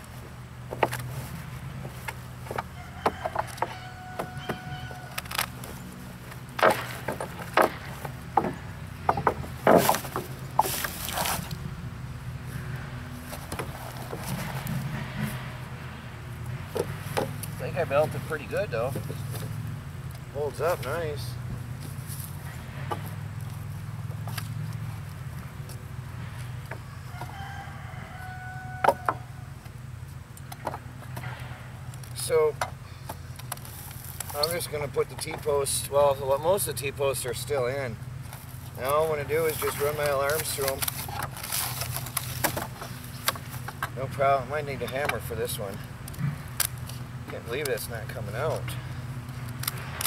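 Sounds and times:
rooster crowing: 2.6s - 5.3s, 26.8s - 29.5s
wooden knocks and cracks: 6.5s - 11.0s.

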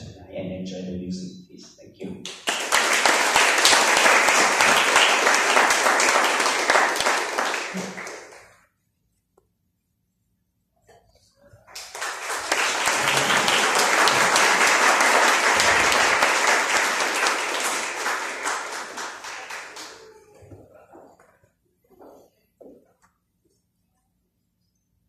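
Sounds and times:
audience applauding: 2.3s - 8.5s, 11.7s - 20.6s.

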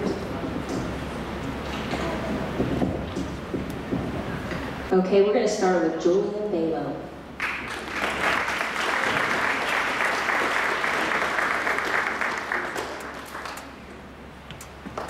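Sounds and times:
audience applauding: 7.4s - 13.9s.

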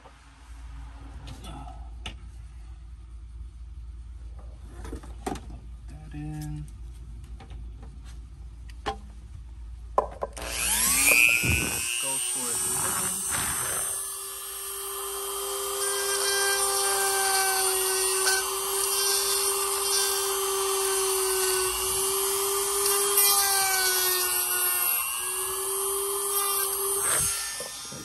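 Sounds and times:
electric drill whining: 10.4s - 28.0s.

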